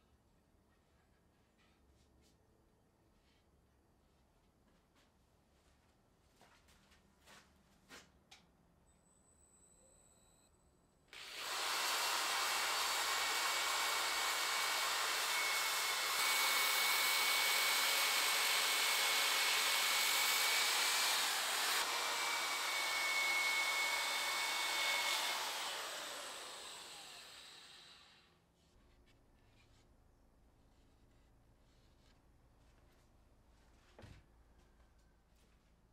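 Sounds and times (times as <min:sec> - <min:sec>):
electric drill power sanding: 0:11.2 - 0:28.3.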